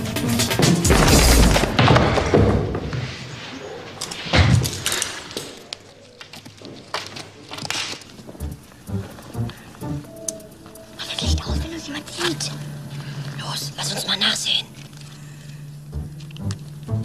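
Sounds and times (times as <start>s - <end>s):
music: 0.0s - 2.0s, 8.3s - 17.0s
crashing noise: 0.7s - 3.5s
heavy thud: 0.9s - 3.0s.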